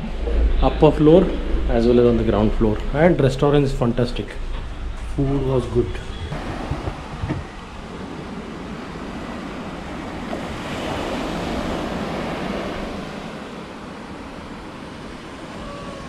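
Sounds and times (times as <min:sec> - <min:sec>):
waves breaking on a beach: 0:05.6 - 0:16.0.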